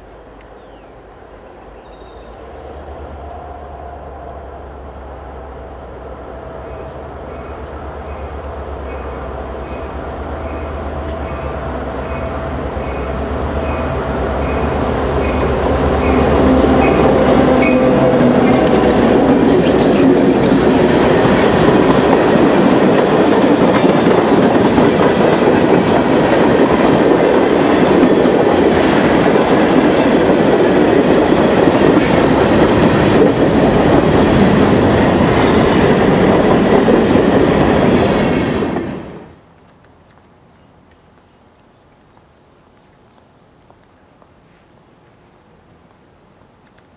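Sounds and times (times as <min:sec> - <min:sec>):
diesel locomotive engines: 0:00.0 - 0:39.9
train wheels clacking over rail joints: 0:12.8 - 0:38.8.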